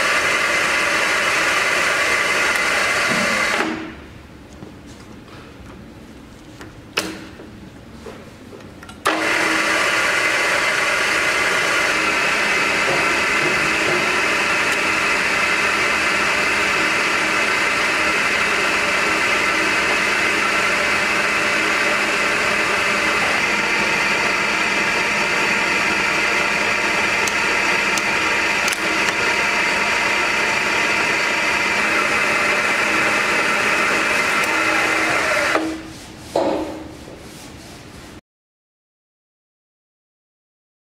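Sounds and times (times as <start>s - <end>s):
milling machine spindle running: 0.0s - 4.0s, 9.1s - 35.8s.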